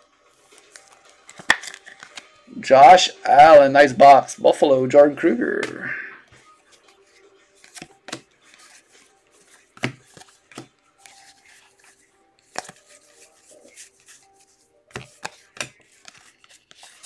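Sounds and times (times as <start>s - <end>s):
cards sliding against cards: 6.7s - 17.0s.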